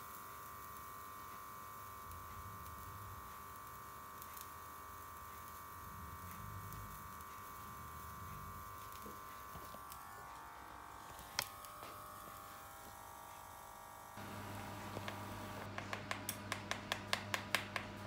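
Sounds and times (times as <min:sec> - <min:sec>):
blowtorch hissing: 0:00.0 - 0:13.4, 0:14.0 - 0:17.6.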